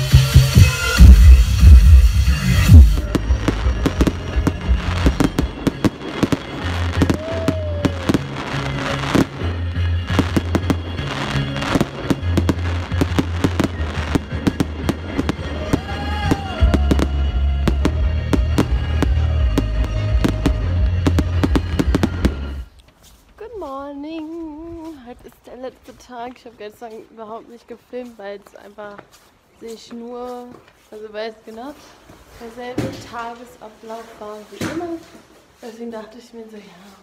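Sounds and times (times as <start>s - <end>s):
electronic music with bass: 0.0s - 5.7s, 7.7s - 22.7s
fireworks crackling and banging: 0.0s - 36.2s.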